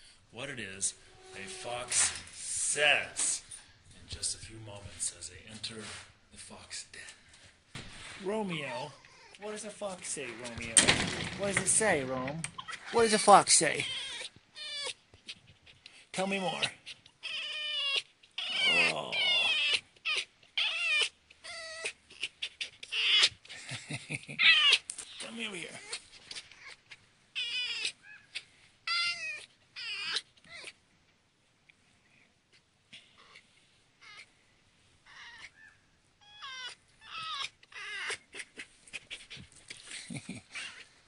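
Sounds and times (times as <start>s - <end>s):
fox whining calls: 16.3s - 23.5s, 24.4s - 30.8s, 35.0s - 39.4s.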